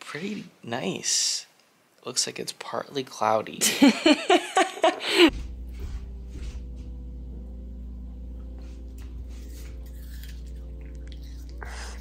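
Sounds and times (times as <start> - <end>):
steady low hum: 5.2 - 12.0
soft music of low chords: 5.3 - 12.0.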